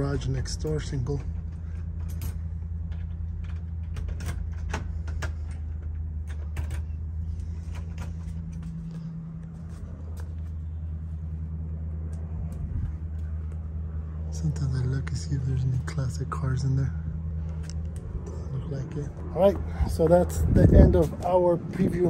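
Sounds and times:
road traffic rumble: 0.0 - 22.0.

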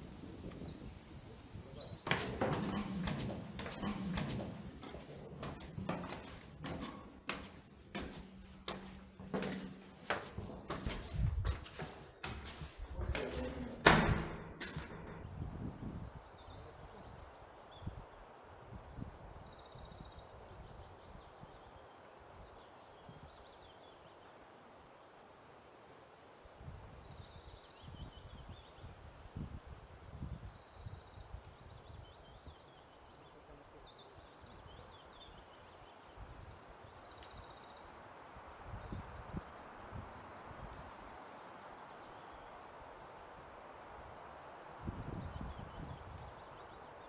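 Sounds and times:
wind buffeting microphone: 0.0 - 21.6, 36.2 - 42.4, 43.1 - 47.0.

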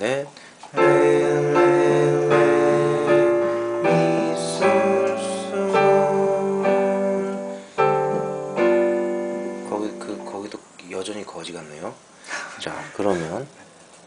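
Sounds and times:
piano chords with melody: 0.8 - 10.6.

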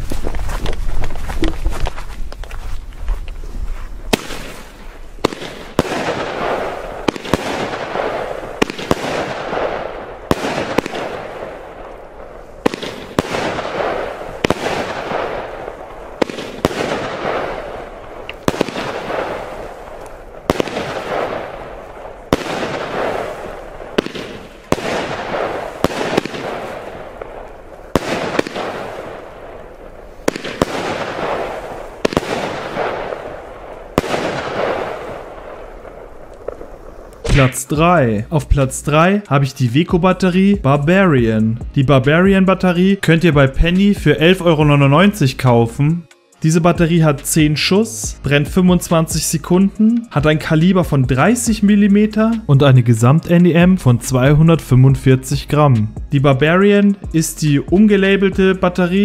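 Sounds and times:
crackling hiss of fireworks: 0.0 - 39.0
firework shots banging: 4.1 - 37.8.

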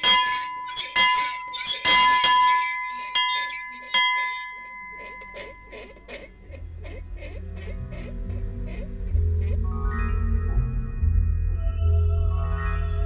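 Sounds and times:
bell ringing: 0.0 - 5.7.

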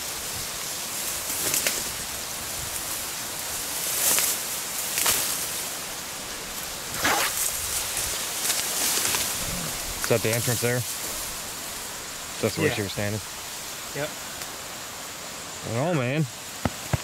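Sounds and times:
dry reeds rustling and crackling: 0.0 - 15.4
brushing swishes: 6.9 - 7.8.

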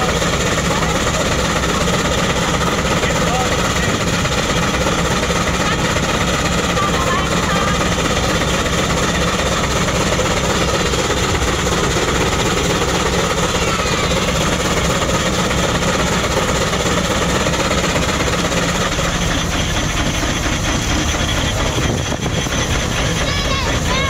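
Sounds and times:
steam traction engine running: 0.0 - 24.0.

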